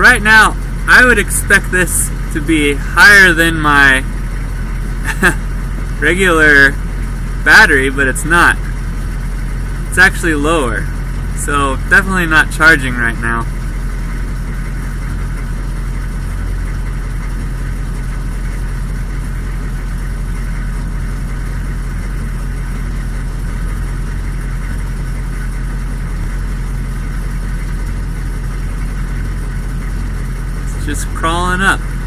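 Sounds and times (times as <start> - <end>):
diesel engine idling: 0.0 - 32.0.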